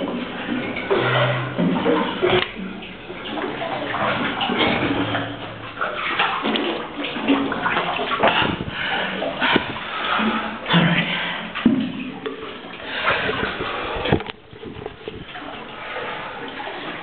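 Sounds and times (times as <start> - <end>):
water splashing and sloshing: 0.0 - 17.0
knocks and scrapes: 0.5 - 2.7, 3.4 - 8.8.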